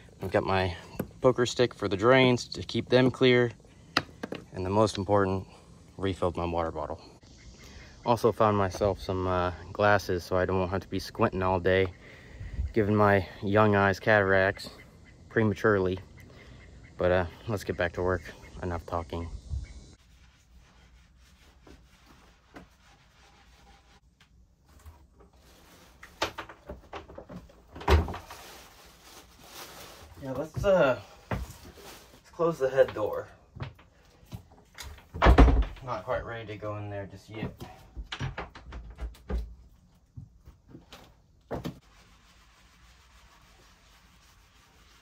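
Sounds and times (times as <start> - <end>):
knocks and bumps in wooden cabin: 26.0 - 28.4, 32.8 - 36.0, 37.4 - 41.8.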